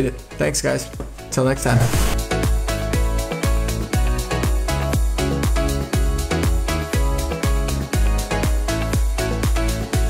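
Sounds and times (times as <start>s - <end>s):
electronic music: 1.4s - 10.0s.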